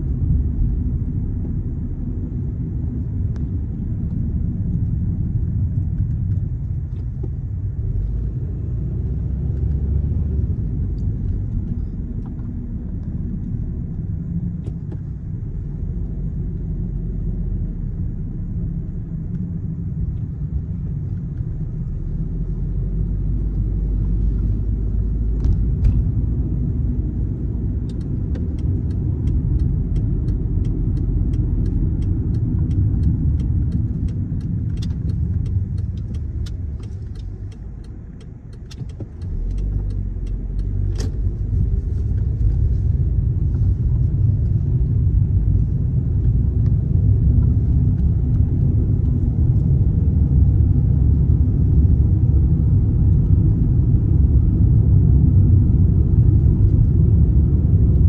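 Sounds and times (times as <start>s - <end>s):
car engine and tyres rumble: 0.0s - 58.0s
faint regular ticking: 27.9s - 40.8s.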